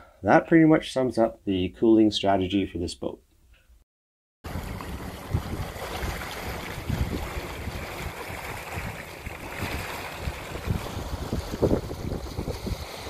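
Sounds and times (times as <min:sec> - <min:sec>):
water rushing in boat wake: 0:04.5 - 0:13.0
wind buffeting microphone: 0:04.5 - 0:13.0.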